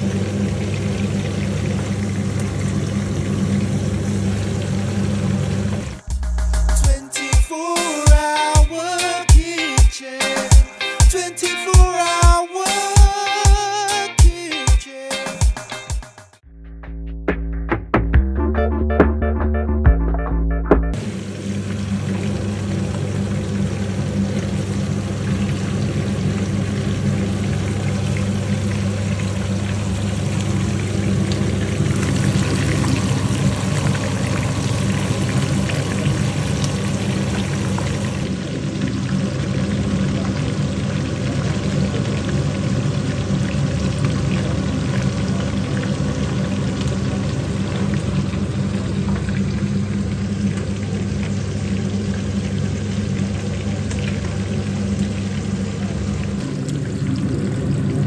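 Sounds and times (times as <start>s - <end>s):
low hum: 16.4s - 21.4s, 29.3s - 39.7s.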